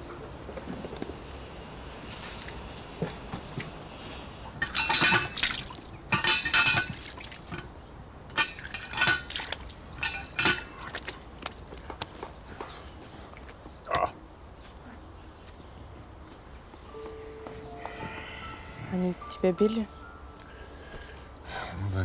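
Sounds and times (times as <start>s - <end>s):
water splashing: 4.5s - 12.2s.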